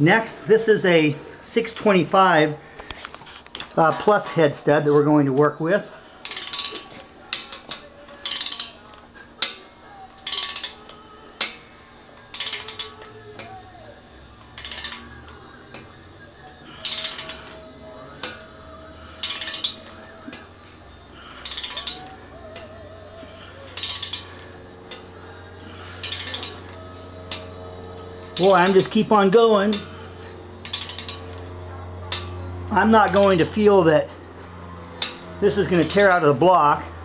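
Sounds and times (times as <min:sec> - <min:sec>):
wrench ratchet clicking: 0:06.2 - 0:09.6, 0:10.2 - 0:15.9, 0:16.6 - 0:20.6, 0:21.2 - 0:22.7, 0:23.6 - 0:27.5, 0:28.3 - 0:29.0, 0:30.6 - 0:31.4, 0:33.1 - 0:33.6.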